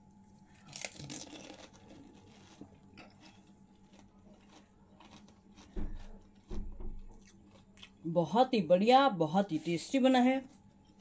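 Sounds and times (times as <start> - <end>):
faint chewing: 0.3 - 8.1
crispy shell crunching: 0.5 - 6.4.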